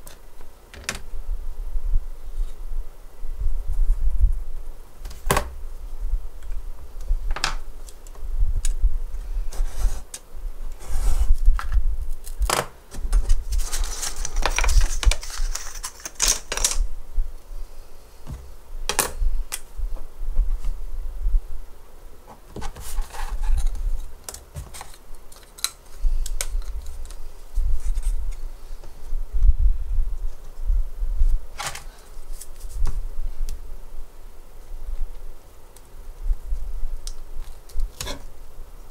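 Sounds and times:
scratchy rubbing: 22.6 - 24.0.

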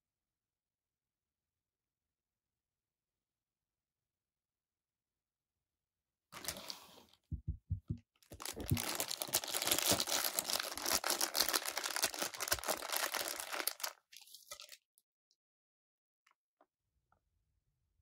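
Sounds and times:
plastic bag crinkling: 6.4 - 6.8, 8.3 - 14.8
soft low knocks: 7.3 - 8.0.

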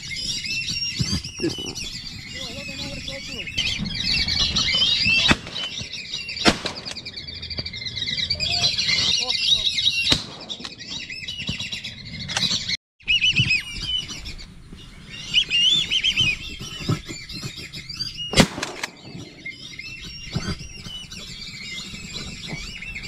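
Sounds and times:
ducks whistling: 0.0 - 23.0
sharp crack: 5.2 - 7.7, 10.0 - 11.6, 18.3 - 19.6.

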